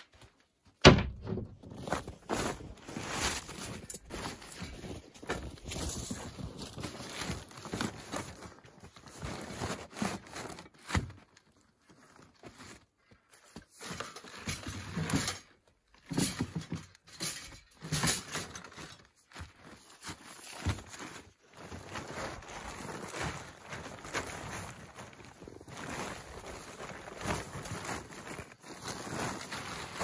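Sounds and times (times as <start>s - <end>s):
knocks and thumps: 0.8s - 1.9s
plastic tarp rustling: 1.6s - 13.0s, 13.6s - 30.0s
footsteps crunching in snow: 1.7s - 10.4s, 19.3s - 30.0s.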